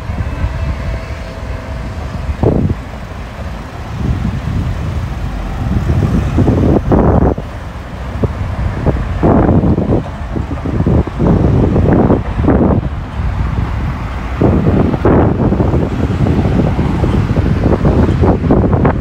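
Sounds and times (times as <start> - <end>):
cars driving past: 0.0 - 19.0.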